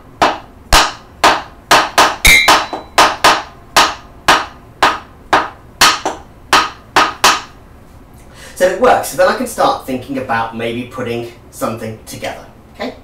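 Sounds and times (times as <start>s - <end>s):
stick hitting steel pot: 0.2s - 7.6s
wooden sticks striking floor: 0.2s - 7.6s.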